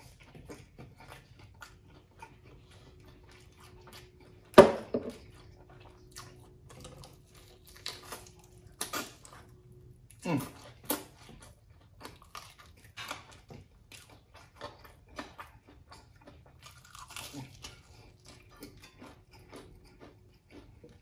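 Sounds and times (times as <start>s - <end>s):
person chewing and lip-smacking: 0.0s - 21.0s.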